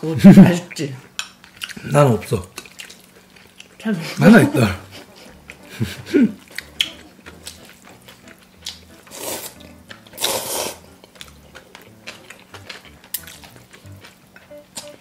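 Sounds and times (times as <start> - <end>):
noodles being slurped: 7.6 - 13.9.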